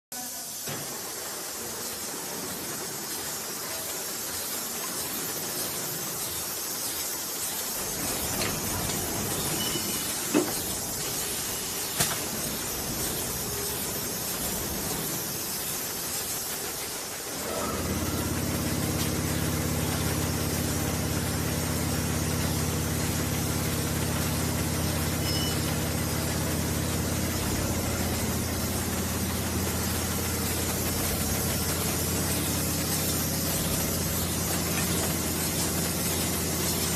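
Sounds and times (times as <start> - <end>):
filling machine hissing: 0.1 - 36.9
steady machine hum: 7.7 - 36.9.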